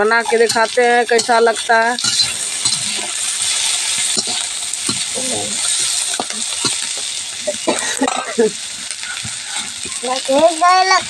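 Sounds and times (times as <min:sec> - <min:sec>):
spatula scraping metal pan: 0:00.0 - 0:07.0
onions sizzling in hot oil: 0:00.0 - 0:11.0.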